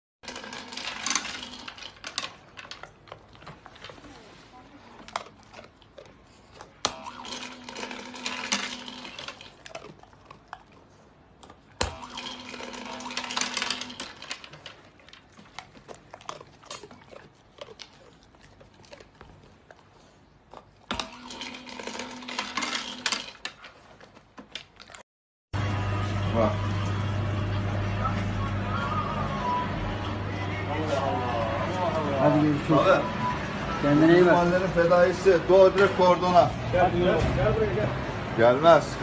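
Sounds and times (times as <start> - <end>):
kibble rattling into tray: 0.3 - 4.0.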